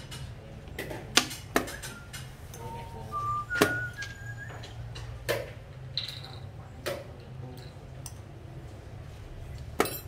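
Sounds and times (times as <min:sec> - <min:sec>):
short whistled notes: 0:01.7 - 0:04.8.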